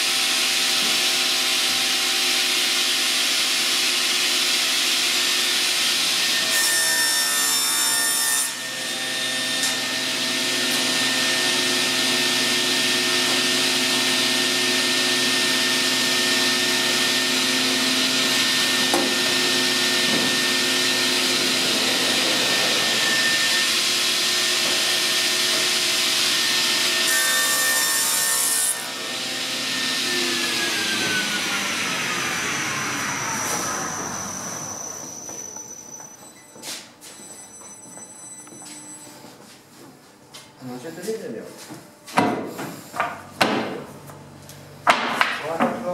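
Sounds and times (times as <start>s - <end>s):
panel saw cutting wood: 0.0s - 35.5s
saw blade winding down: 28.9s - 36.0s.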